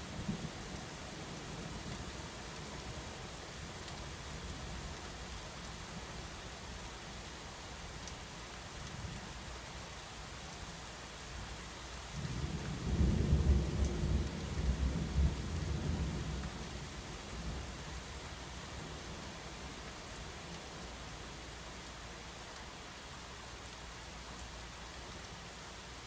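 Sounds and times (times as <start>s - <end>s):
steady rain: 0.0s - 26.0s
thunder rumble: 12.2s - 17.7s.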